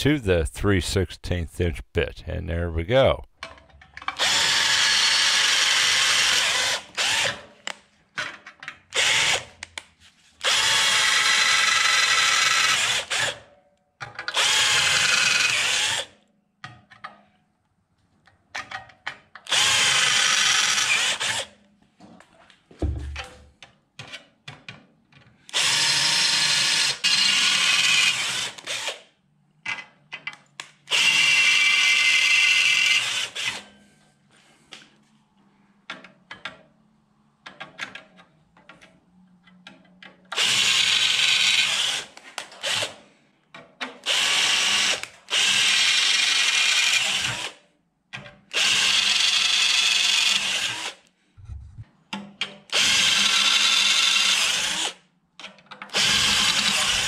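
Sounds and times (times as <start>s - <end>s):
electric drill boring through steel: 4.2s - 7.4s, 9.0s - 9.5s, 10.4s - 13.4s, 14.3s - 16.1s, 19.5s - 21.5s, 25.5s - 29.0s, 30.9s - 33.6s, 44.1s - 47.6s, 48.6s - 51.0s, 52.7s - 54.9s, 56.0s - 57.0s.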